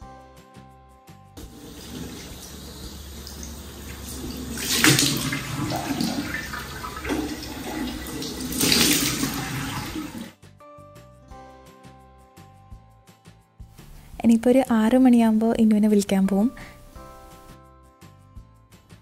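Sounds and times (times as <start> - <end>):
tap running into washbasin: 1.4 - 10.3
water splashing in basin: 1.4 - 10.3.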